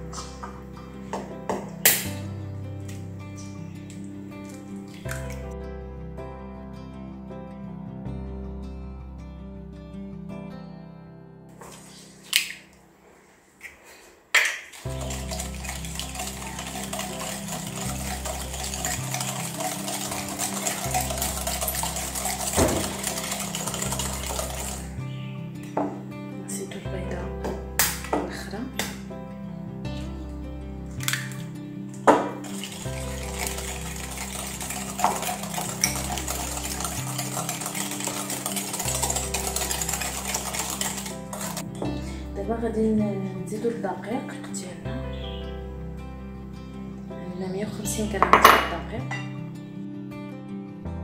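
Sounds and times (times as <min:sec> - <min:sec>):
background music with bass line: 0:00.0 - 0:10.8
background music with bass: 0:00.0 - 0:11.5, 0:20.3 - 0:35.1, 0:38.8 - 0:43.5, 0:44.9 - 0:51.0
whisk beating batter in glass bowl: 0:14.7 - 0:24.9, 0:32.4 - 0:41.6
whisk clinking against bowl: 0:15.0 - 0:24.9, 0:32.1 - 0:41.6.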